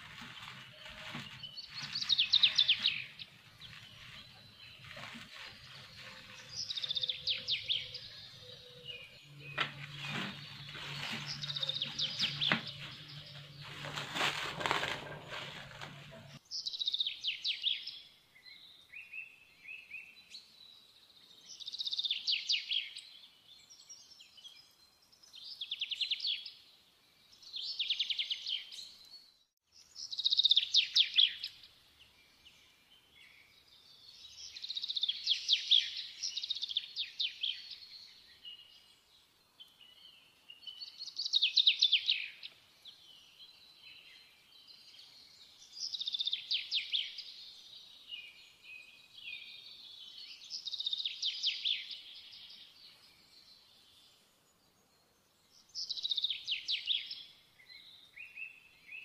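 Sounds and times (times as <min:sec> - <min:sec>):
rustling noise: 0:00.0 - 0:08.4, 0:09.3 - 0:16.4
songbird trilling: 0:06.4 - 0:09.9.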